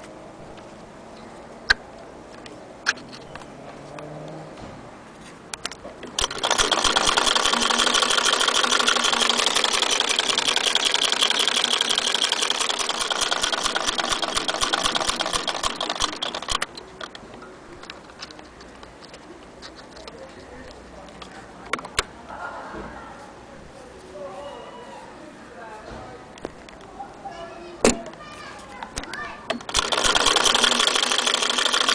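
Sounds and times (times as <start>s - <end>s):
sewing machine clattering: 6.1s - 17.2s, 29.5s - 31.9s.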